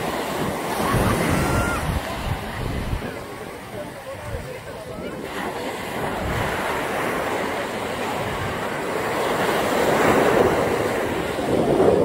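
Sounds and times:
surf washing onto sand: 0:00.0 - 0:12.0
wind on microphone: 0:00.0 - 0:12.0.

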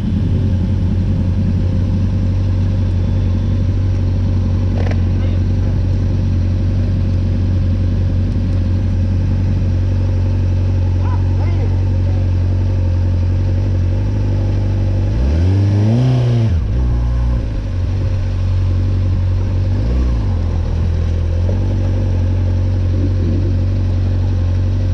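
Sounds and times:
motorcycle engine idling and revving: 0:00.0 - 0:24.9.

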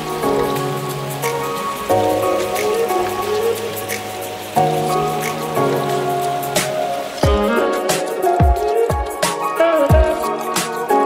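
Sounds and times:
held melody: 0:00.0 - 0:11.0
kick drum: 0:07.2 - 0:07.6, 0:08.4 - 0:09.2, 0:09.9 - 0:10.2.

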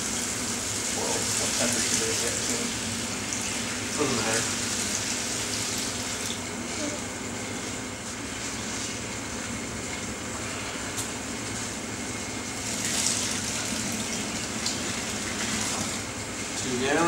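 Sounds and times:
water pouring and splashing: 0:00.0 - 0:06.4, 0:12.6 - 0:16.6.

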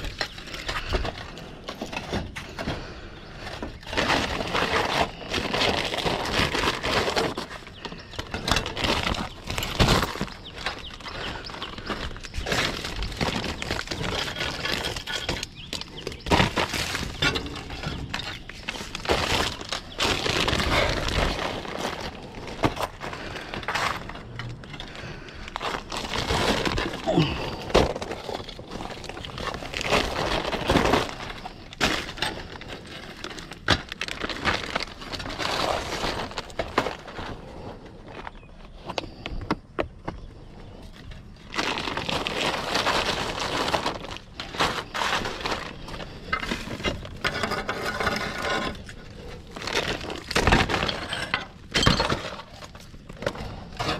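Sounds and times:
roof tiles clattering: 0:00.0 - 0:40.1, 0:41.2 - 0:53.9.

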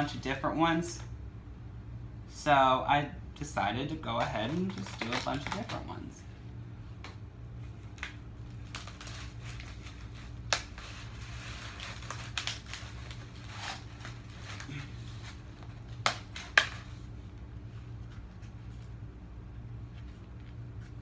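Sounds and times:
steady low hum: 0:00.0 - 0:21.0
plastic containers being handled: 0:04.1 - 0:06.2.

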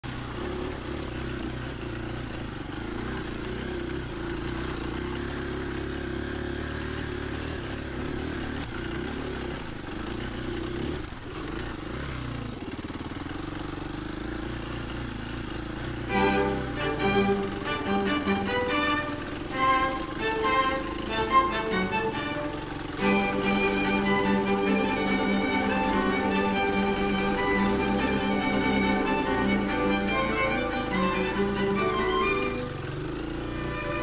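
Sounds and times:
motorcycle engine running: 0:00.0 - 0:34.0
violins playing: 0:16.1 - 0:34.0.

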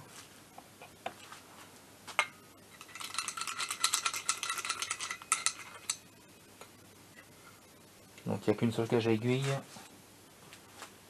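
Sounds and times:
metallic rattling with light ringing: 0:02.8 - 0:06.1.

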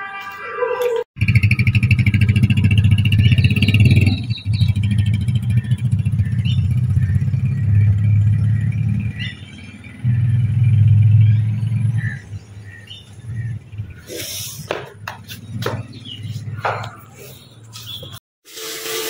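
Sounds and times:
small motorcycle engine: 0:01.2 - 0:11.4.

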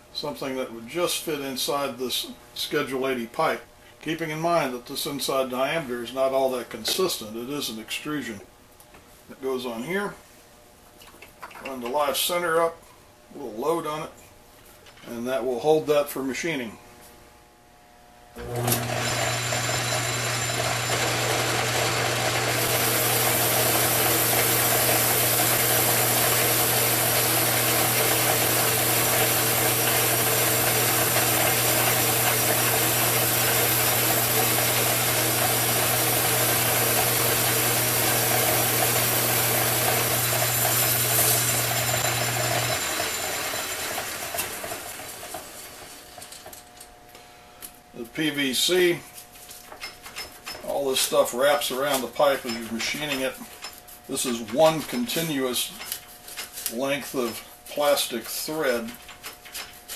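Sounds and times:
lathe motor hum: 0:18.4 - 0:46.0
lathe chuck spinning down: 0:18.4 - 0:46.4.

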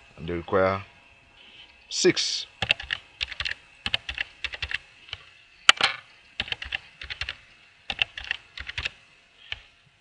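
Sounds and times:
typing on a keyboard: 0:02.6 - 0:04.8, 0:06.4 - 0:09.7.

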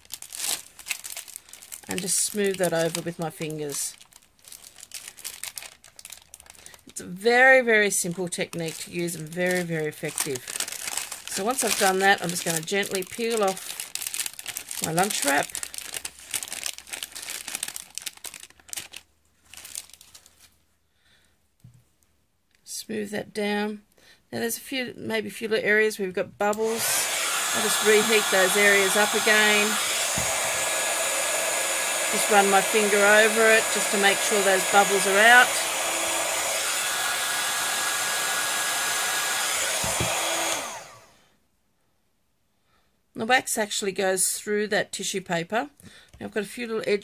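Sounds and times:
paper crinkling: 0:00.0 - 0:06.8, 0:08.5 - 0:20.6
heat tool blowing air: 0:26.6 - 0:41.2.

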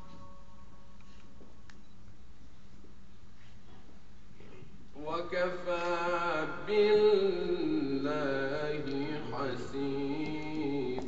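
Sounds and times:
man chanting melodically: 0:05.0 - 0:11.0.

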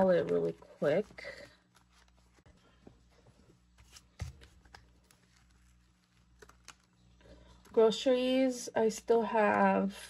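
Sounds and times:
paper and plastic rustling: 0:00.0 - 0:07.8.

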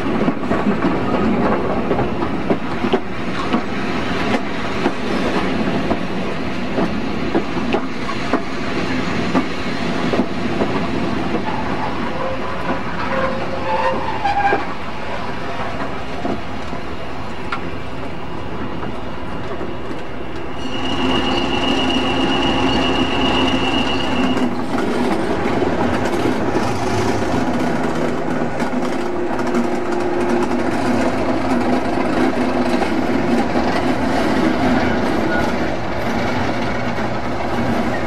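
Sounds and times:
diesel locomotive engine: 0:00.0 - 0:38.0
high-pitched squeal: 0:20.5 - 0:24.7.

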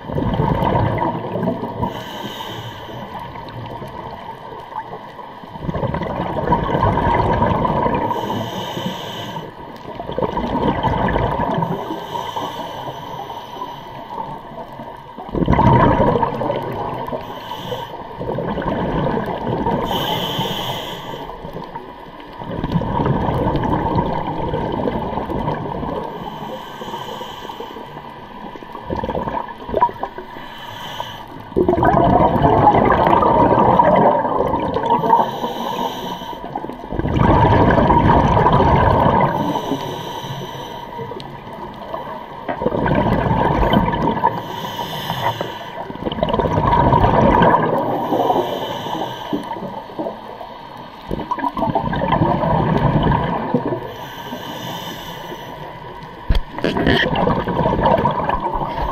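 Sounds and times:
bubbly underwater exhalations: 0:00.0 - 0:01.9, 0:05.5 - 0:08.2, 0:10.0 - 0:11.8, 0:15.2 - 0:17.2, 0:18.2 - 0:20.1, 0:22.4 - 0:26.0, 0:28.7 - 0:30.2, 0:31.6 - 0:35.3, 0:36.8 - 0:39.5, 0:42.4 - 0:44.4, 0:45.9 - 0:48.4, 0:51.1 - 0:53.9, 0:56.2 - 0:58.9
regulator inhalation hiss: 0:01.9 - 0:03.4, 0:08.1 - 0:09.6, 0:11.7 - 0:14.0, 0:17.1 - 0:18.1, 0:19.8 - 0:21.5, 0:26.1 - 0:28.0, 0:30.2 - 0:31.5, 0:35.0 - 0:36.6, 0:39.4 - 0:41.4, 0:44.3 - 0:45.9, 0:47.9 - 0:49.7, 0:53.9 - 0:55.8.

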